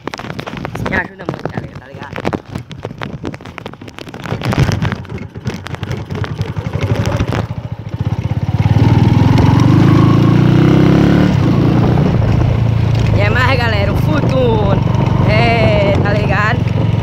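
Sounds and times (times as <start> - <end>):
knocks and rattles: 0.0 - 10.0
motorcycle engine running: 0.0 - 17.0.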